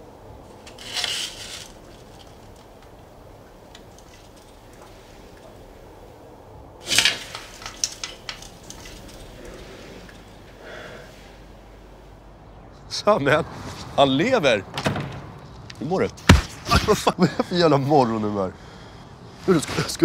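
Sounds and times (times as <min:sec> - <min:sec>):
blind slats rattling and clicking: 0:00.0 - 0:06.2, 0:06.8 - 0:10.5
blind rustle: 0:00.0 - 0:11.9.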